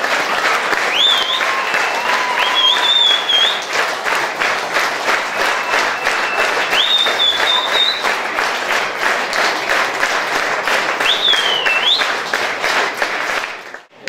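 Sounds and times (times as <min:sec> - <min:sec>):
audience clapping in rhythm: 0:00.0 - 0:14.0
high whistle-like tones: 0:05.4 - 0:08.0.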